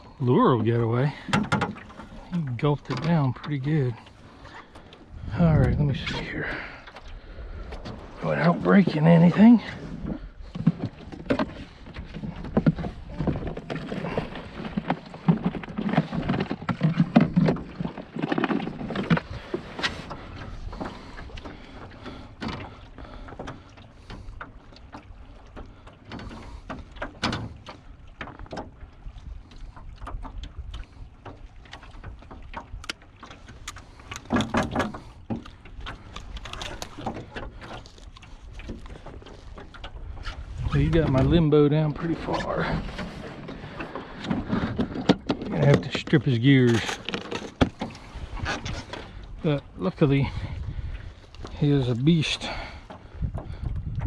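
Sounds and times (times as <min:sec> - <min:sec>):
rummaging in plastic tackle bin: 0:44.2 - 0:47.8.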